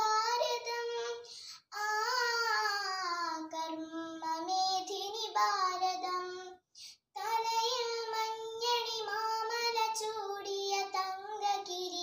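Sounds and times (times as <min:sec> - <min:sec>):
girl singing: 0:00.0 - 0:12.0.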